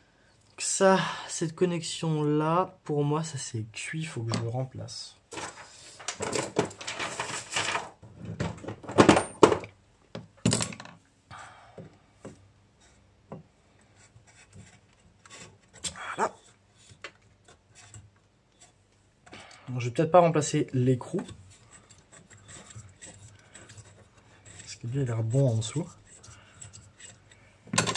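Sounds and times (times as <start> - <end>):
hands rubbing and scraping wiring: 13.8 - 27.7.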